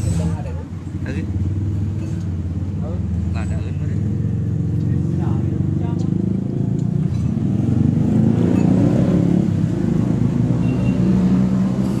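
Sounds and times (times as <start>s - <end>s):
engine droning: 0.0s - 12.0s.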